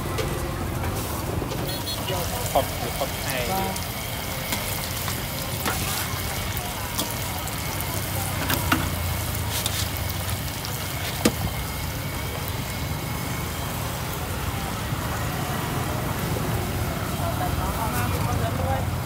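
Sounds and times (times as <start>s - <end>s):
hot oil sizzling in a wok: 0.0s - 19.0s
street traffic hum: 0.0s - 19.0s.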